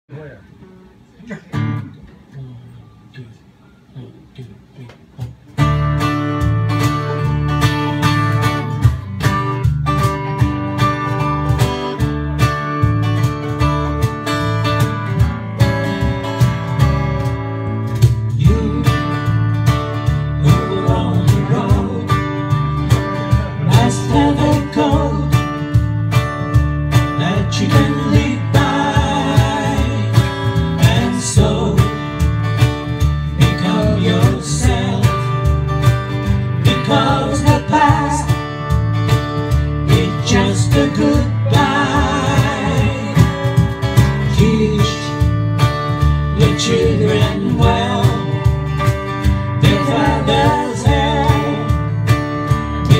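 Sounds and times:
electric guitar: 0:05.2 - 0:52.9
steady beat: 0:05.2 - 0:52.9
acoustic guitar strumming: 0:05.4 - 0:52.9
women singing in harmony: 0:49.6 - 0:51.8.

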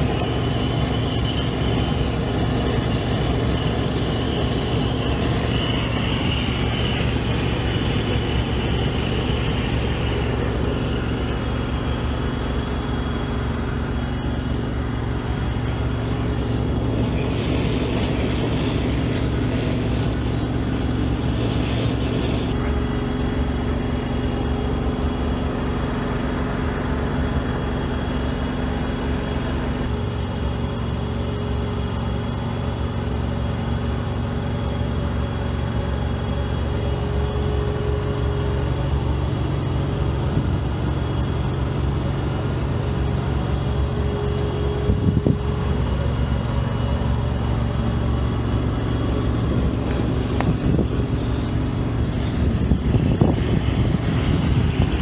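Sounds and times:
burner flame rushing: 0:00.0 - 0:24.8, 0:36.4 - 0:55.0
engine running: 0:00.0 - 0:55.0.

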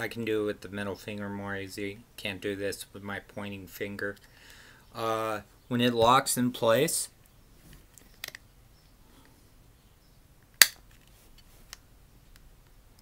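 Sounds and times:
loud sharp click: 0:10.6 - 0:10.8.

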